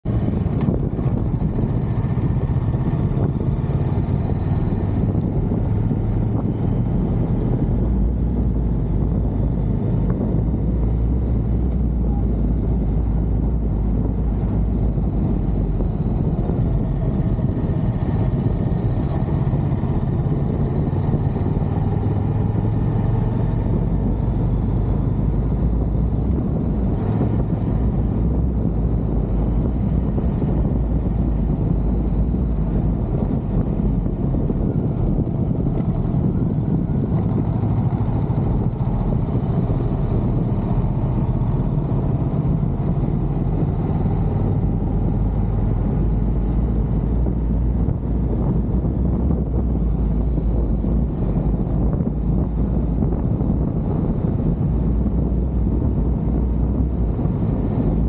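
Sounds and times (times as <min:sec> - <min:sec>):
motorcycle engine running: 0:00.0 - 0:58.0
rushing wind noise: 0:00.0 - 0:58.0.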